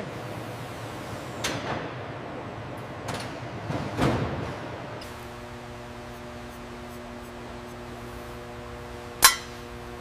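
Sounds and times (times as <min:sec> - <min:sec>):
workshop background noise: 0:02.8 - 0:10.0
low machine hum: 0:04.6 - 0:10.0.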